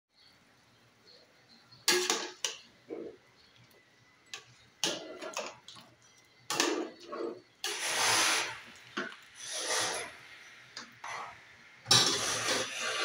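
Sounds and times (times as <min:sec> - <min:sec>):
metal spoon scraping a pot: 0:04.4 - 0:05.8, 0:06.5 - 0:13.0.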